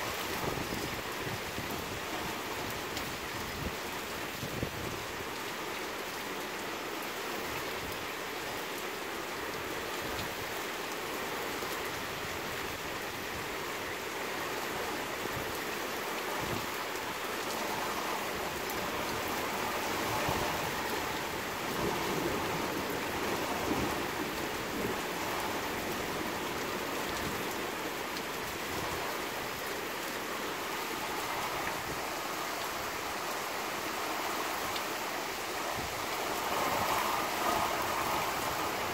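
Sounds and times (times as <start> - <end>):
rain pattering on leaves: 0.0 - 38.9.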